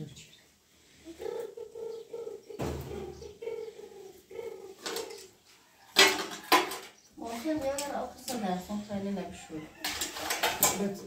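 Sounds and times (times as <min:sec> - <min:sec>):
pigeons cooing: 0:00.0 - 0:07.4
sharp thump: 0:02.6 - 0:03.1.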